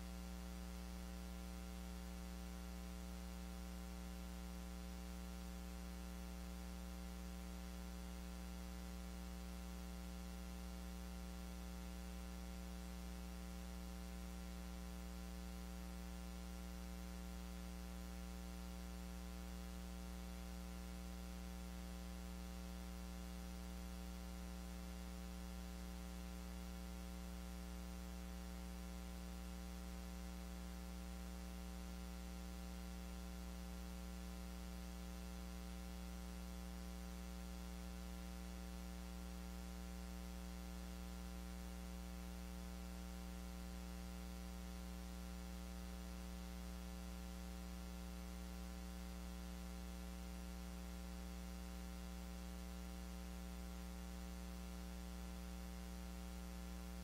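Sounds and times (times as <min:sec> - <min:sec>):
electrical mains hum: 0:00.0 - 0:57.0.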